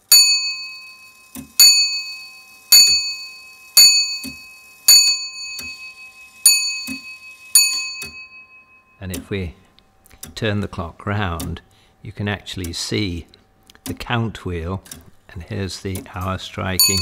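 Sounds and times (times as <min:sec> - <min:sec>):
clock bell striking: 0:00.0 - 0:09.1, 0:16.8 - 0:17.0.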